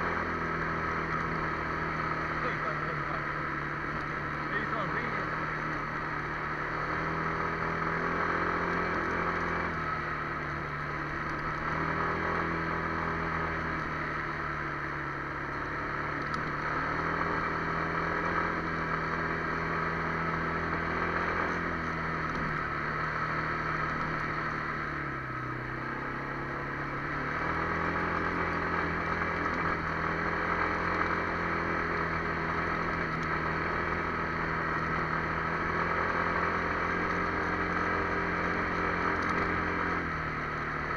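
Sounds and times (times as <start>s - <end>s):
atv engine running: 0.0s - 40.9s.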